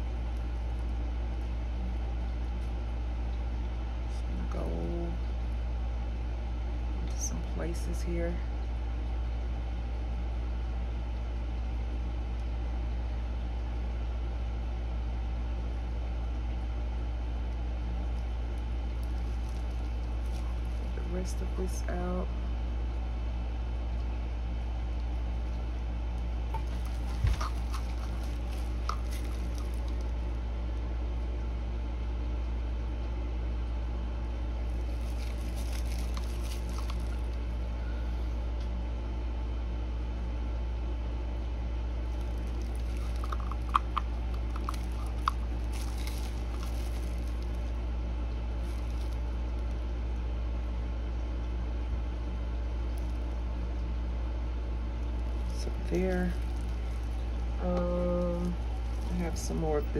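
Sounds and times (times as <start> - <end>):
low electrical hum: 0.0 - 59.9
stir stick scraping resin: 26.5 - 30.1, 42.2 - 47.6.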